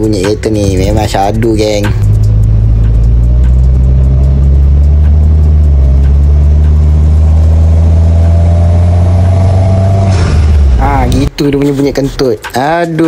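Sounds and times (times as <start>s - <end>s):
car engine low drone: 0.0s - 12.2s.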